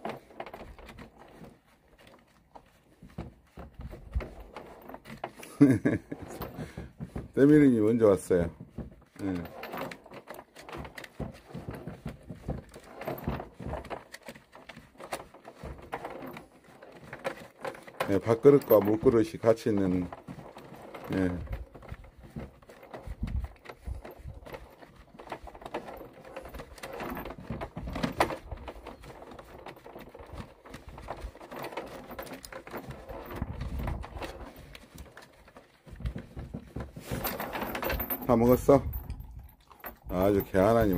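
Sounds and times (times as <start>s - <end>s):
dog eating from plastic bowl: 38.3s - 40.9s.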